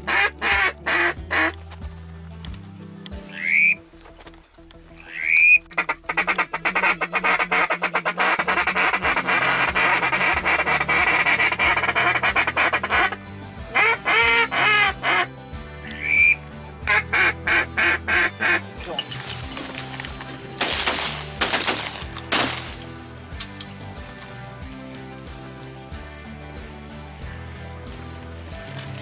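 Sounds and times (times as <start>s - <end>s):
honking bird calls: 0.0s - 1.6s, 3.0s - 19.7s
waterfowl chattering: 0.0s - 1.6s, 3.2s - 3.8s, 4.9s - 18.7s.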